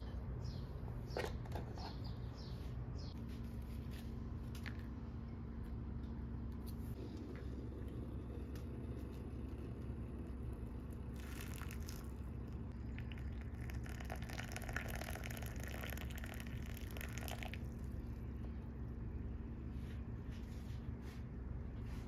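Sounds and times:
hot water pouring into mug: 7.3 - 17.9.

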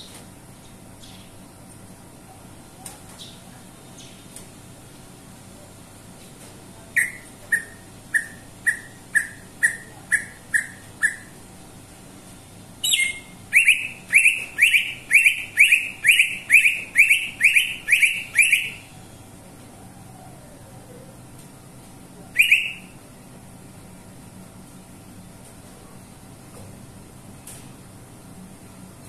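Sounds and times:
bird singing short notes: 12.8 - 18.8.

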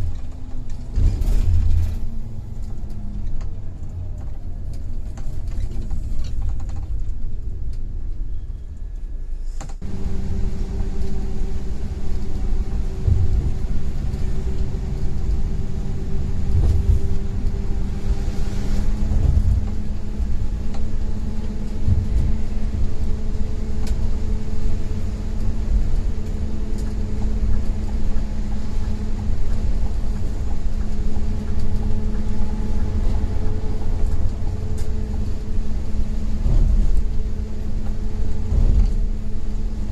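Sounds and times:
coach engine and road rumble: 0.0 - 39.9.

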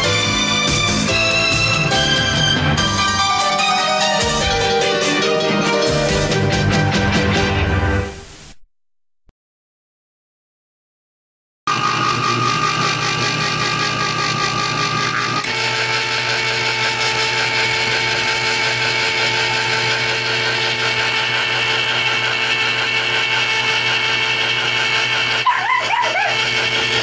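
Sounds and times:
small electric motor running: 11.7 - 27.0.

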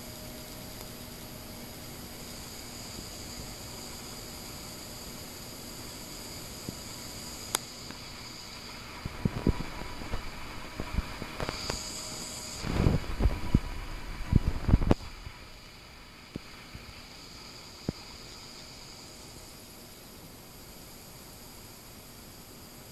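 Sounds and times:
steady hiss with high whine: 0.0 - 22.9.

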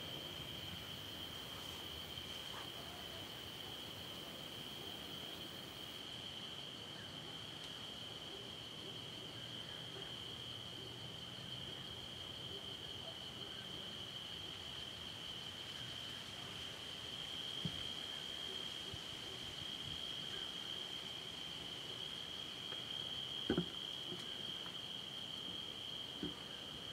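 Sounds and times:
night insect chorus: 0.0 - 26.9
faint tap: 23.5 - 24.3.

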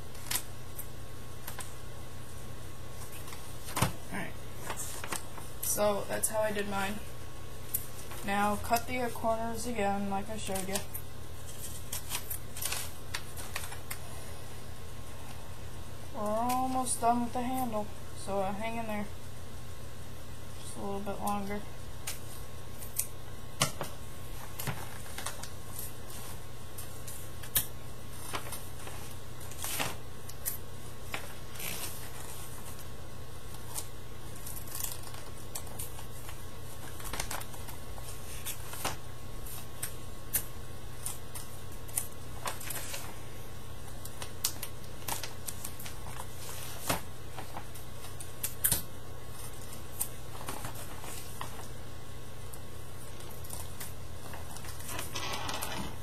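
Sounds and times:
paper crinkling: 0.0 - 5.8, 10.1 - 14.2, 21.3 - 56.0
steady low hum: 0.0 - 56.0.

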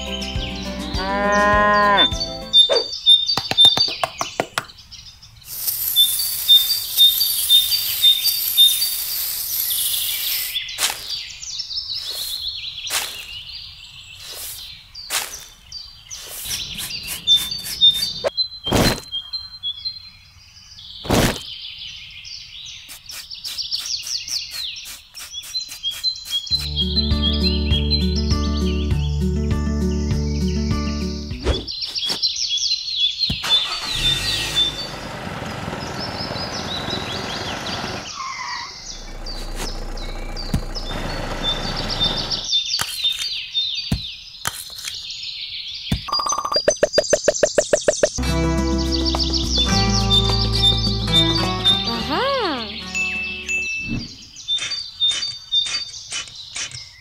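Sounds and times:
small birds chirping: 0.0 - 57.0
cow mooing: 0.9 - 2.2
sharp knocks and taps: 3.3 - 4.7, 45.9 - 48.2
hissing: 5.5 - 10.6, 33.4 - 35.8.

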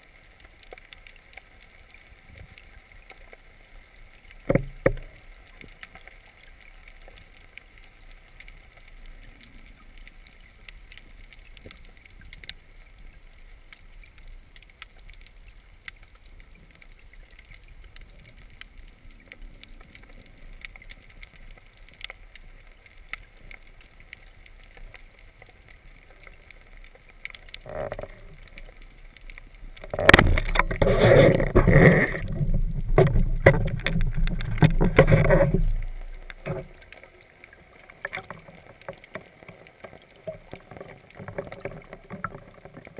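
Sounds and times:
small underwater clicks: 0.0 - 42.9
water churning and splashing: 16.6 - 42.9.

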